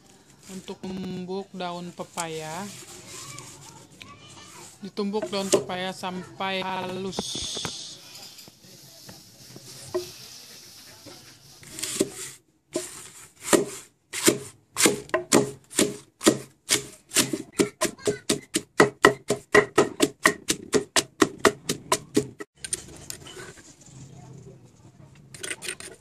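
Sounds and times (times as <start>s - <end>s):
wooden pestle pounding in mortar: 12.8s - 22.5s.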